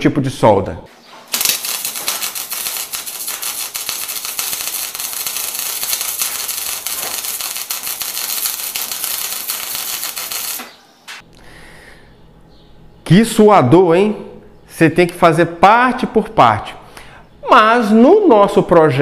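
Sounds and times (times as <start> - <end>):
electric arc welding crackle: 1.3 - 10.8.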